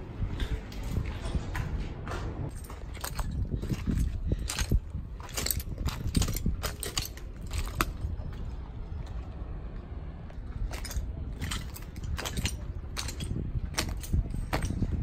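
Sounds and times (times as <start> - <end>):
steady low rumble: 0.0 - 15.0
footsteps on gravel: 0.2 - 9.3.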